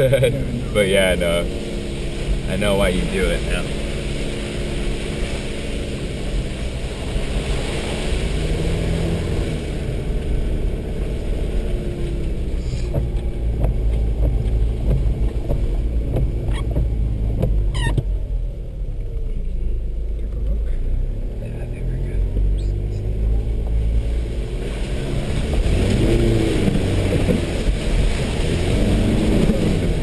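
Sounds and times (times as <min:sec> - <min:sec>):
vehicle engine running: 0:00.0 - 0:30.0
sharp knocks and clunks: 0:12.8 - 0:18.1.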